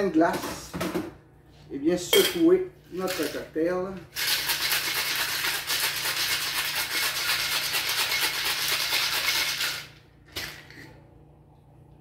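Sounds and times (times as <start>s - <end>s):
ice rattling in cocktail shaker: 4.1s - 10.6s.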